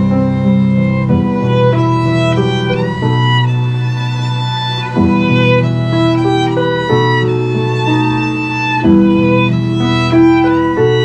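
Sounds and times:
low sustained chord accompaniment: 0:00.0 - 0:11.0
violin playing slow melody: 0:00.0 - 0:11.0.

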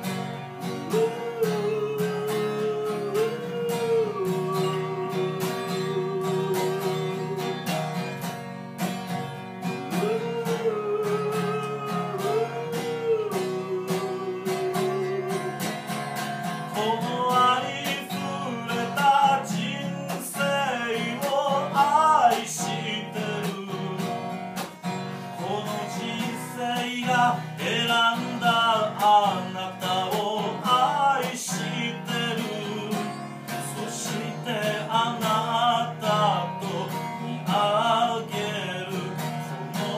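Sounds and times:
man singing: 0:00.0 - 0:08.3, 0:09.6 - 0:39.9
acoustic guitar strumming: 0:00.0 - 0:39.9.

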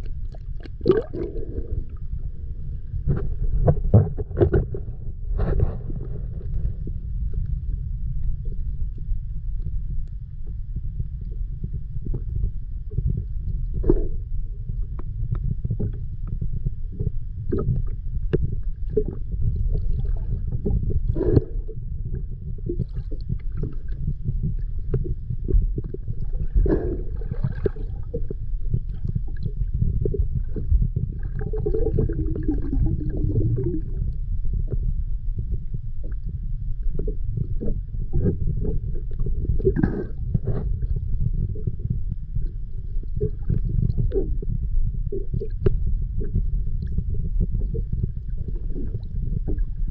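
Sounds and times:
underwater gurgling bursts: 0:00.0 - 0:02.2, 0:13.0 - 0:49.9
low underwater rumble: 0:00.0 - 0:49.9.

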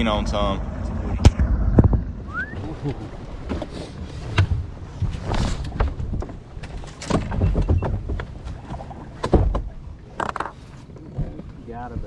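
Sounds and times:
boat rumble: 0:00.0 - 0:12.0
knocks and clunks: 0:01.1 - 0:02.2, 0:03.4 - 0:12.0.

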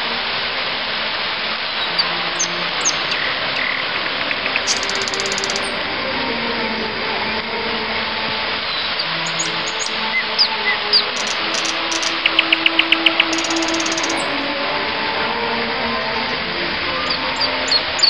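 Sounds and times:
fountain water jets spraying: 0:00.0 - 0:18.0
bird chirps: 0:01.8 - 0:05.7, 0:08.7 - 0:14.4.

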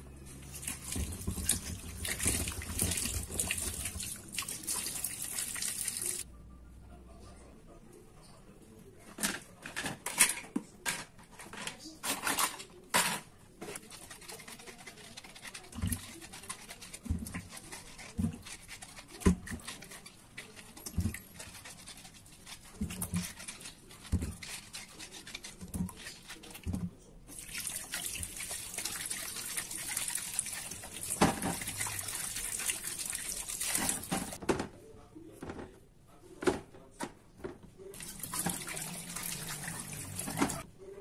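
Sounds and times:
tap running water: 0:00.5 - 0:06.2, 0:26.7 - 0:34.4, 0:38.0 - 0:40.6
hands scrubbing in water: 0:13.7 - 0:26.7, 0:27.3 - 0:34.4.

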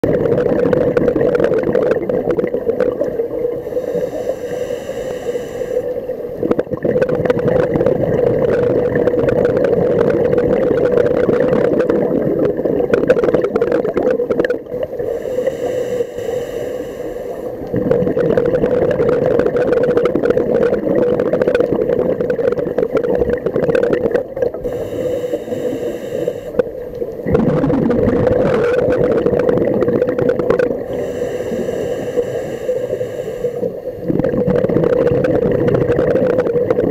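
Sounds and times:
muffled underwater water noise: 0:00.0 - 0:36.9
faint clicks: 0:17.0 - 0:17.8, 0:19.3 - 0:27.4.

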